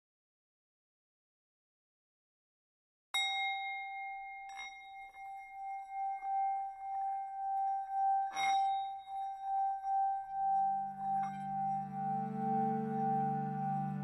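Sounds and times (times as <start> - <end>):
singing bowls ringing: 3.2 - 14.0.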